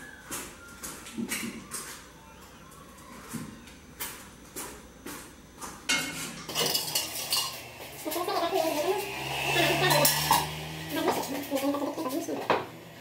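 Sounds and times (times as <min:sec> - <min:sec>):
metal pot and utensils clattering: 0:05.9 - 0:09.1, 0:09.7 - 0:12.7.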